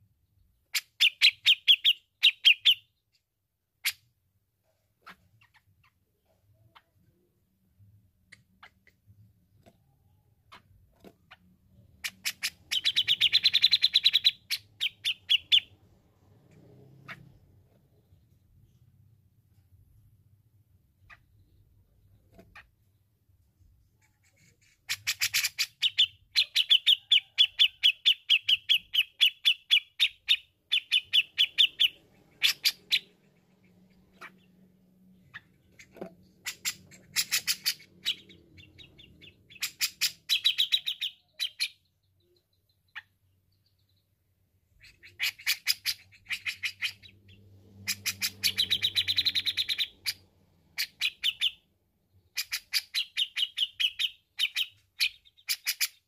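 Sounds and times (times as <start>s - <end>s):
bird chattering song: 0.6s - 3.1s, 8.2s - 17.4s, 24.0s - 56.0s.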